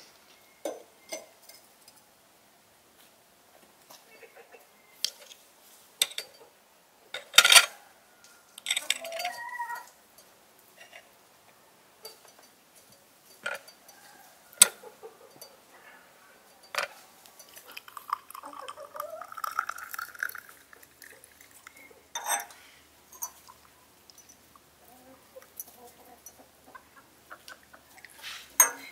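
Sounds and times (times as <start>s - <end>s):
metal spoon clinking glassware: 8.6s - 9.5s, 12.0s - 14.1s, 16.5s - 24.5s, 28.6s - 28.9s
liquid pouring into glass cup: 17.4s - 24.3s.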